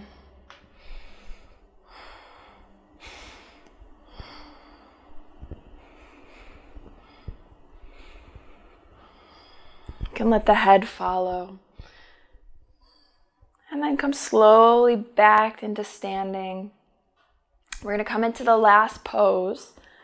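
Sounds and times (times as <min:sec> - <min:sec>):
woman breathing slowly: 0:00.0 - 0:10.2, 0:11.6 - 0:13.6, 0:19.8 - 0:20.0.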